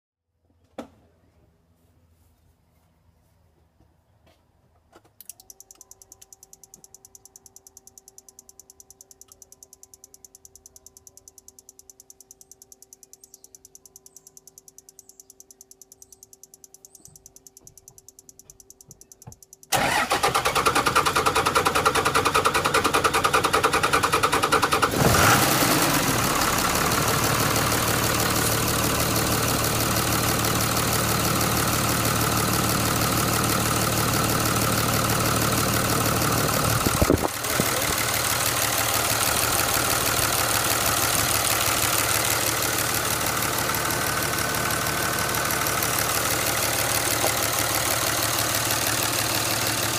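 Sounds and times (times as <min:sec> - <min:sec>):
diesel engine idling: 0:19.7 - 0:49.9
starter cranking engine: 0:19.7 - 0:49.9.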